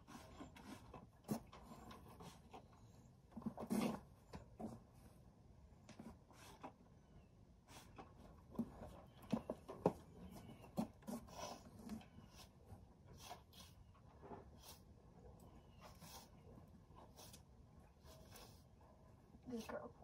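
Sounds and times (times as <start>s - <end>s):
brush rubbing a horse: 0.0s - 2.8s, 7.7s - 19.9s.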